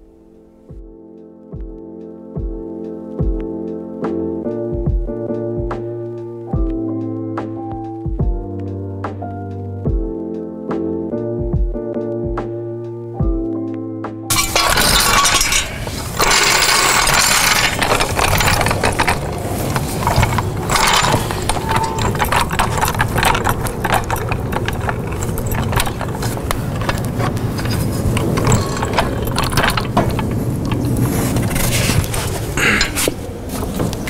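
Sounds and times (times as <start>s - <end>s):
floor jack clicks and clanks: 14.3s - 34.0s
constant rushing noise: 15.5s - 34.0s.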